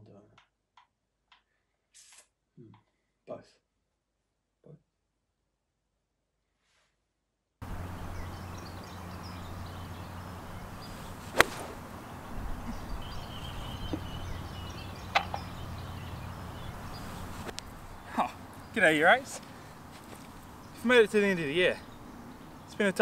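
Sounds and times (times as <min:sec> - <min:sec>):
low outdoor hum: 0:07.6 - 0:23.0
golf club striking ball: 0:08.7 - 0:17.7.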